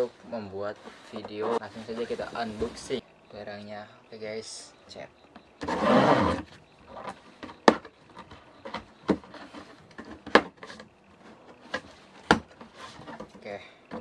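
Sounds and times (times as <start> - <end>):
scraping on cardboard: 0.7 - 3.0, 5.6 - 13.4
tape and cardboard rasp: 0.8 - 3.0, 5.6 - 6.6, 8.6 - 13.4.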